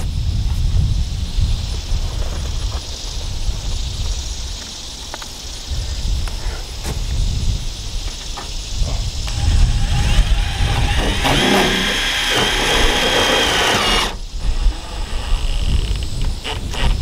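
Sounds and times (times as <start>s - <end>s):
power drill whining: 9.3s - 16.0s.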